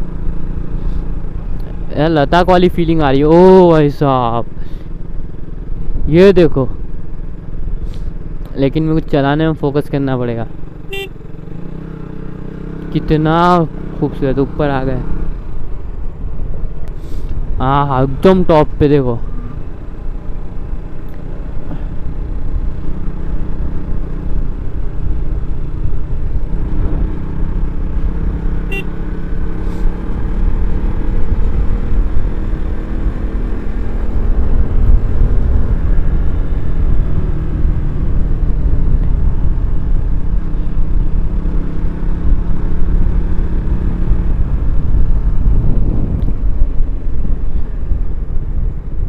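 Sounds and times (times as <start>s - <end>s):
motorcycle engine cruising: 0.0s - 49.0s
wind rumble on microphone: 30.4s - 41.5s, 43.8s - 49.0s.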